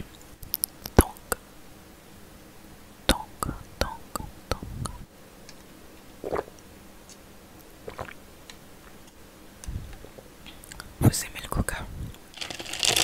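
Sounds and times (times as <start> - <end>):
mouth sounds: 0.8 - 1.4, 3.1 - 5.1.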